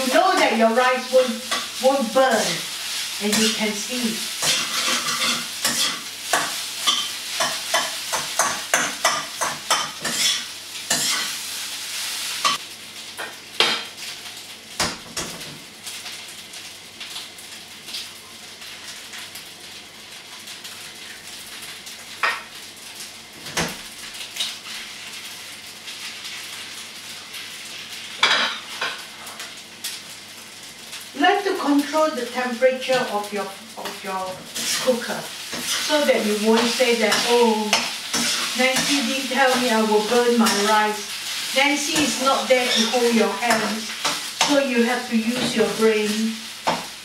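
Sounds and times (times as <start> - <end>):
rice sizzling in a frying pan: 0.0 - 47.0
metal spoon scraping pan: 4.4 - 11.3, 34.6 - 39.6, 41.9 - 44.6.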